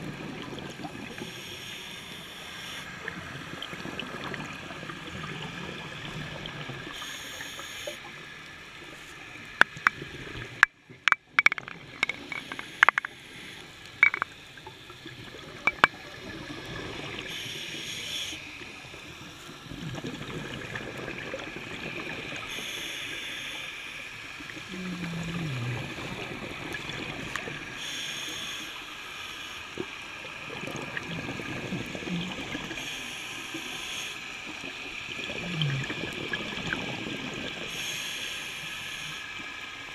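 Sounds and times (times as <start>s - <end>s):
underwater water noise: 0.0s - 39.9s
sharp clicks and knocks: 9.6s - 10.0s, 10.6s - 13.2s, 14.0s - 14.4s, 15.6s - 16.0s.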